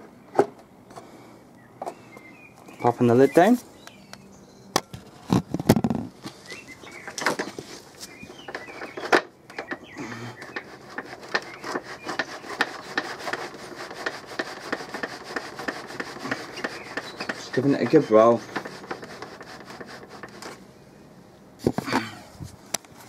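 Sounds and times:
lid rubbing scrape: 10.4 - 20.6.

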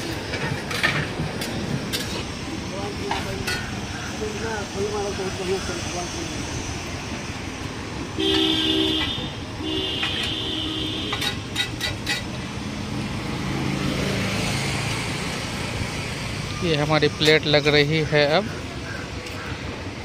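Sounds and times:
street traffic noise: 0.0 - 20.0
vehicle horn honking: 8.2 - 11.4.

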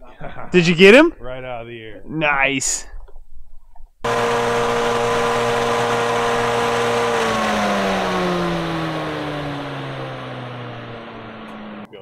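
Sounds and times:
fan motor hum: 4.0 - 11.9.

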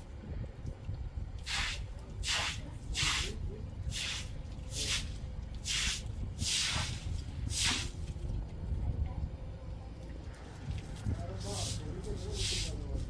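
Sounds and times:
broom sweeping wet concrete: 1.5 - 8.0, 11.4 - 13.0.

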